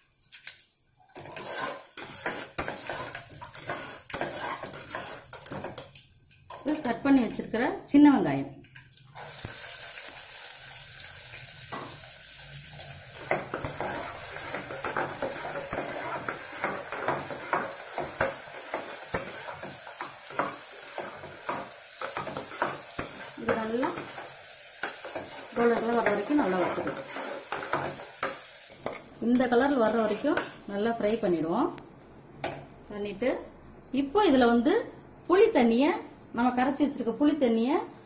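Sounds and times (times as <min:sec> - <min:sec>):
shallots sizzling in oil: 0:00.7 - 0:07.4, 0:09.2 - 0:31.4
metal ladle scraping pot: 0:01.2 - 0:05.9, 0:13.1 - 0:29.0.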